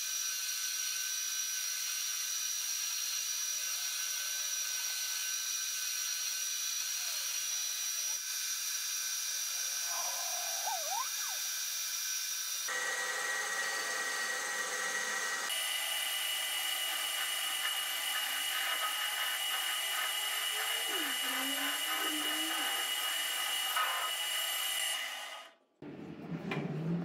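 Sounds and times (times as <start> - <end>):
metal lathe whine: 3.4 - 25.5
cutting hiss: 16.5 - 24.9.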